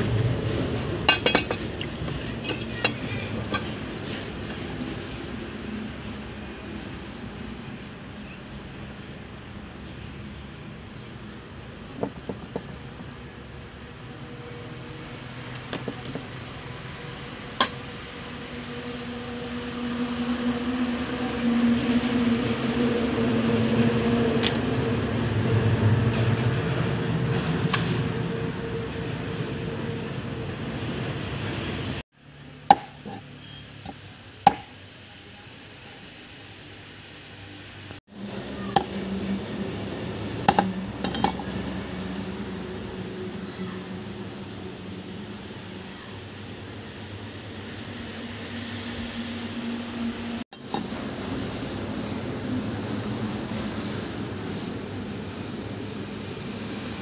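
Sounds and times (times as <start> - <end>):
engine-like hum: 0.0 - 57.0
blade chopping on wooden board: 32.7 - 33.2.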